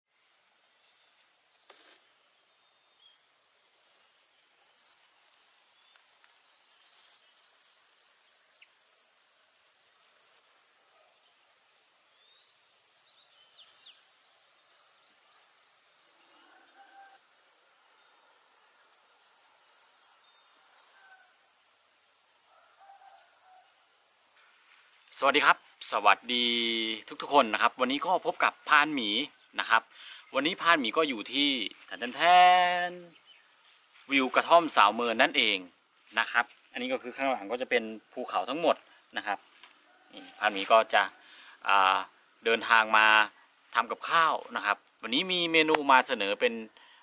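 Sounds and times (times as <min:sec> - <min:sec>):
insects chirping: 0:00.1 - 0:47.0
thin insect hum: 0:00.1 - 0:47.0
faint bird calls: 0:16.2 - 0:17.3.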